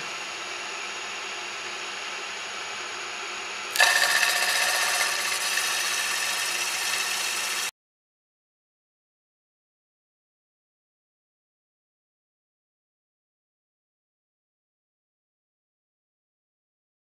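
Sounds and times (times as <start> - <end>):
cutter cutting metal: 3.8 - 7.7
milling machine motor hum: 3.8 - 7.7.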